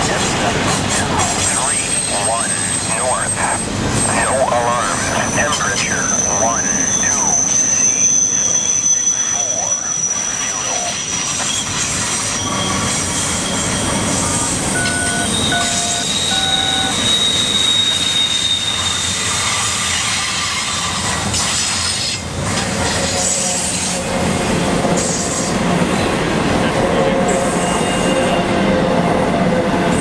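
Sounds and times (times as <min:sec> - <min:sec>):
train wheels rumbling on rail: 0:00.0 - 0:30.0
wheel flange squeal: 0:02.0 - 0:22.2.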